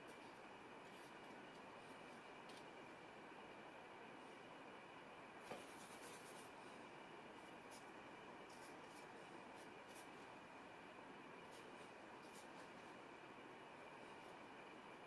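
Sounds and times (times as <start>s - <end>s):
steady low hiss: 0.0s - 15.0s
brush strokes on paper: 7.4s - 10.4s.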